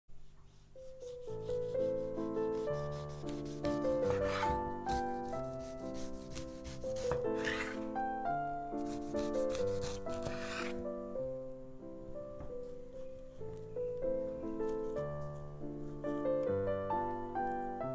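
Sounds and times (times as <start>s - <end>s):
light background music: 0.4s - 17.9s
knife slicing tomatoes on board: 2.5s - 7.8s, 8.8s - 10.8s.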